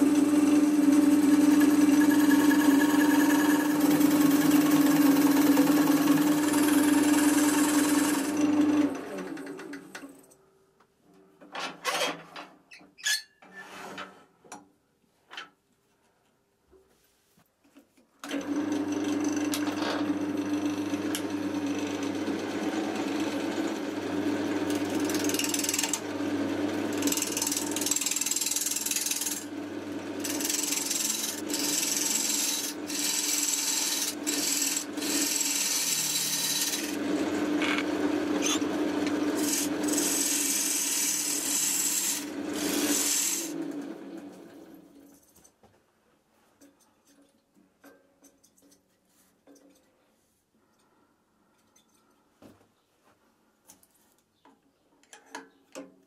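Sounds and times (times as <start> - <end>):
wood lathe humming: 0.0 - 9.7, 18.2 - 44.6
turning tool scraping wood: 26.9 - 29.4, 30.2 - 43.6.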